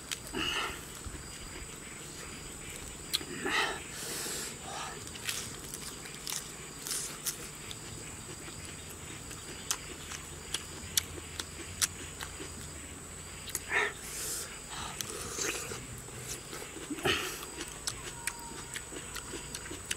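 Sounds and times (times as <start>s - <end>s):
wet chewing: 0.1s - 3.3s, 5.0s - 13.7s, 14.4s - 19.9s
lip smacks and mouth clicks: 9.4s - 12.7s, 13.4s - 13.7s, 15.0s - 19.9s.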